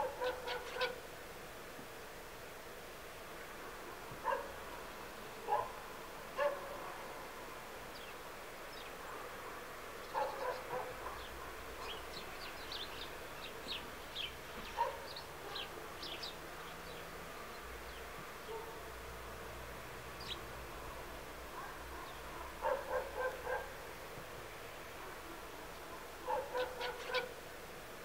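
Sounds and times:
louder lower bird calls: 0:00.0 - 0:01.0, 0:25.8 - 0:27.4
small birds chirping: 0:00.0 - 0:01.0, 0:07.9 - 0:09.2, 0:09.9 - 0:18.8, 0:20.1 - 0:20.6, 0:21.6 - 0:23.7, 0:25.6 - 0:27.4.

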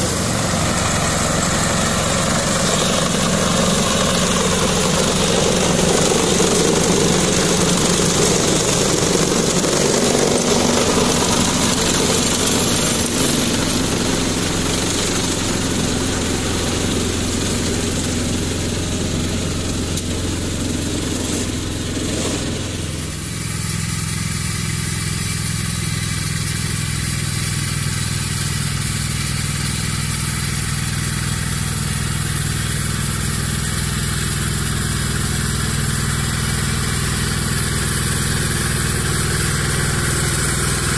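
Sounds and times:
rotary mower whirring: 0:00.0 - 0:40.9
tractor engine running: 0:00.0 - 0:40.9.

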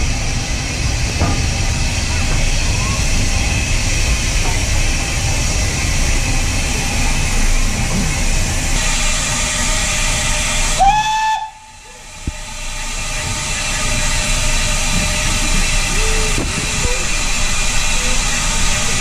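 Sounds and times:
steam locomotive hissing steam: 0:00.0 - 0:19.0
steam whistle: 0:08.8 - 0:11.8.

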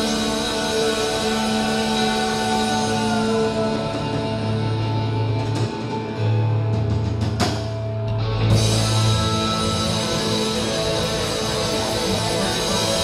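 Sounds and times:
guitar held notes: 0:00.0 - 0:13.0
steady bass line: 0:00.0 - 0:13.0.

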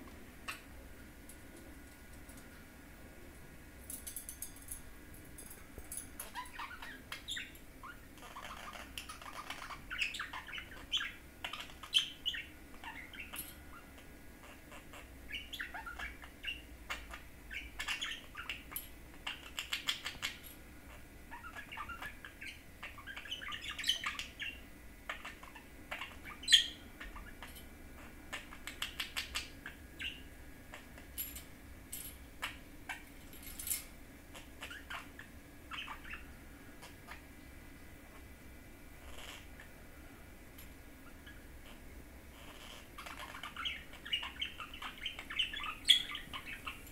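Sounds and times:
budgerigar chattering and warbling: 0:06.3 - 0:30.9, 0:42.4 - 0:46.9.

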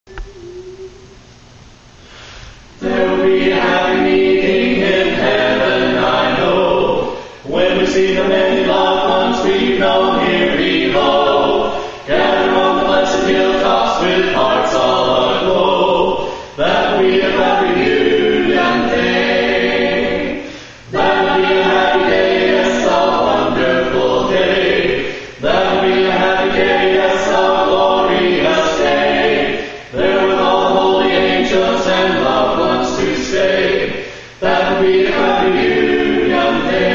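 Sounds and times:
vocal quartet singing a cappella: 0:02.0 - 0:36.9.

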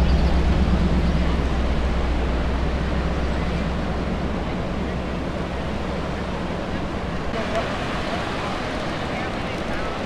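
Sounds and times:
surf breaking on beach: 0:07.3 - 0:10.0.

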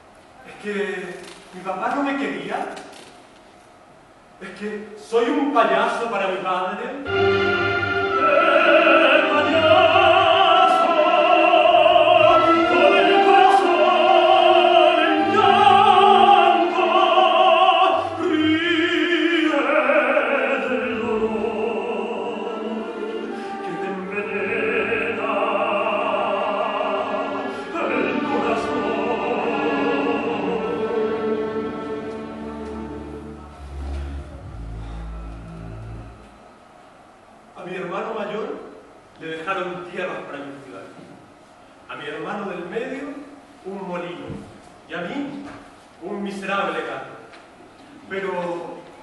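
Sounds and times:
musical accompaniment: 0:07.0 - 0:36.5
operatic singing: 0:07.1 - 0:36.5.

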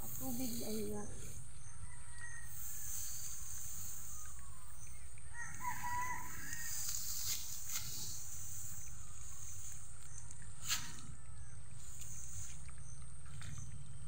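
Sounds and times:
rooster crowing: 0:01.8 - 0:02.9, 0:05.3 - 0:06.9.

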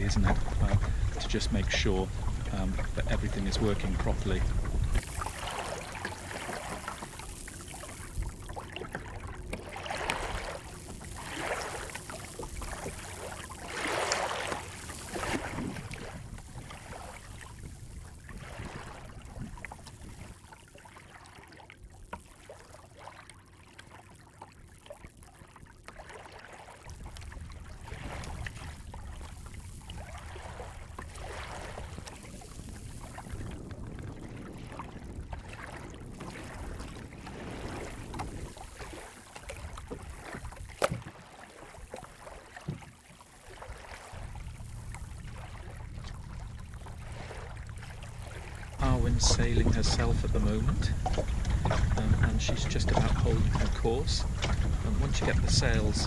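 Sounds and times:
water splashing against boat hull: 0:00.0 - 0:56.0.

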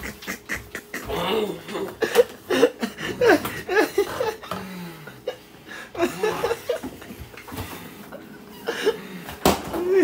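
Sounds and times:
person laughing: 0:00.0 - 0:07.5
person groaning: 0:00.9 - 0:02.2.

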